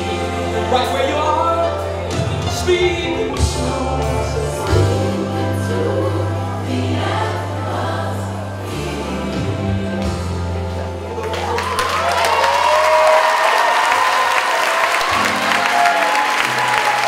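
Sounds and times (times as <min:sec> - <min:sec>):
gospel choir singing: 0:00.0 - 0:11.1
held bass notes: 0:00.0 - 0:11.5.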